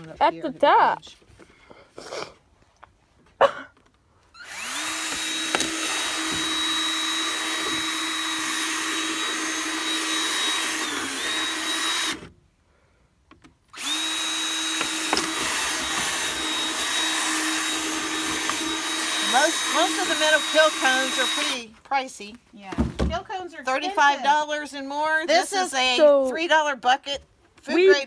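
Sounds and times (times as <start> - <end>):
cordless drill drilling plastic: 4.3 - 12.3, 13.7 - 21.7.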